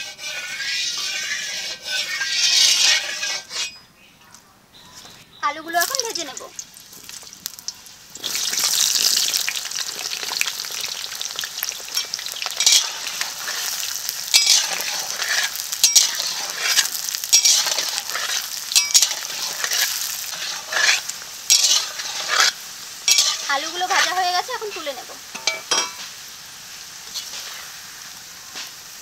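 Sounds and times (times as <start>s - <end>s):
potatoes sizzling in hot oil: 0.0s - 3.7s, 4.9s - 29.0s
spatula scraping and clinking: 0.0s - 3.9s, 11.8s - 26.1s.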